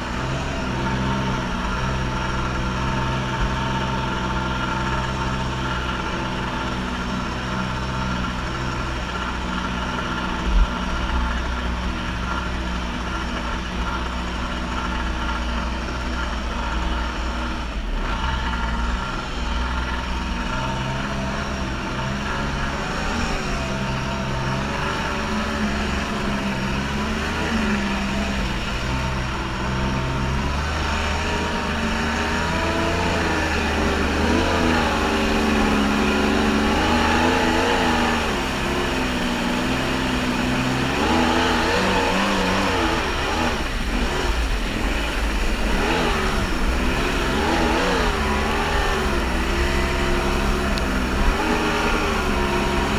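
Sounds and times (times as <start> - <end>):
jet ski engine running: 0.0 - 52.9
water rushing: 20.6 - 52.9.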